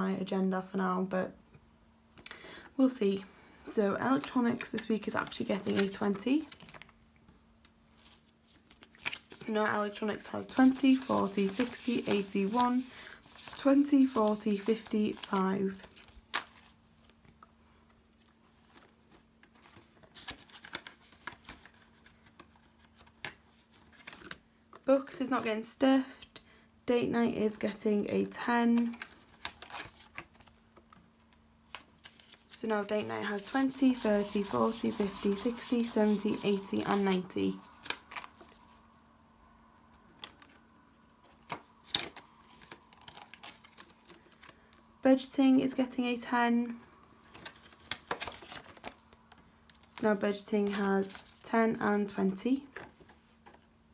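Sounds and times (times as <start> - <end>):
plastic banknotes crinkling: 4.1 - 6.9, 8.0 - 17.2, 31.7 - 38.8, 41.8 - 44.8, 47.3 - 49.2, 49.8 - 52.2
plastic crinkling: 41.3 - 44.8.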